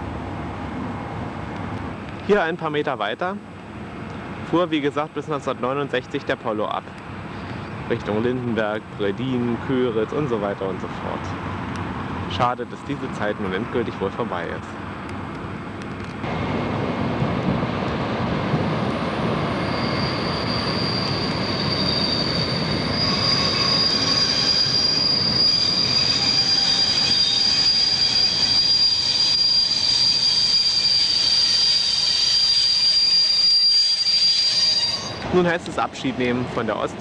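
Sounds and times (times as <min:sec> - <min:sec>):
train rumbling: 0:00.0 - 0:37.0
wheels squealing on rails: 0:18.6 - 0:35.6.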